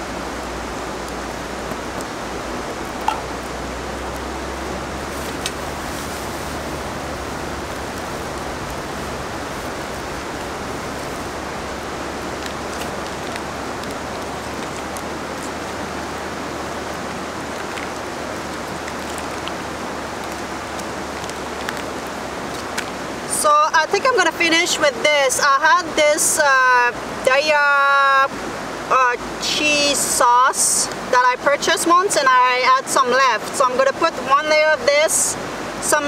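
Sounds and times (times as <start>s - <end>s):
river rushing: 0.0s - 36.0s.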